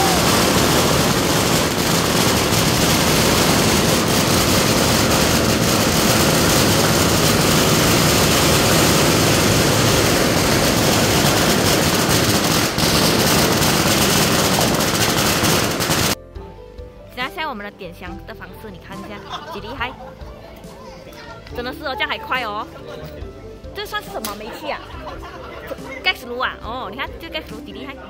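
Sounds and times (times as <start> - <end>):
fireworks crackling: 0.0 - 16.2.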